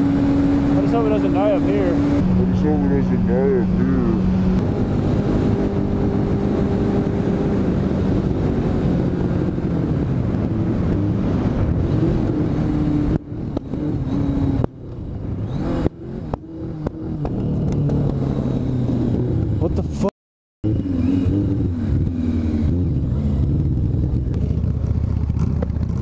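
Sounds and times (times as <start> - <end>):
motorcycle engine popping and faltering: 13.0 - 19.7, 20.6 - 26.0.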